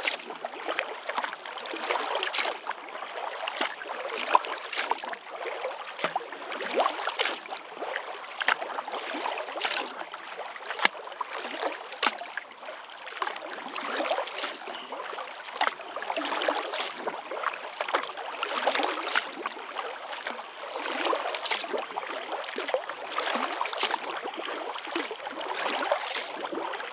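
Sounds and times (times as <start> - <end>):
paddle splashing in water: 0.0 - 26.9
water dripping from paddle: 0.0 - 26.9.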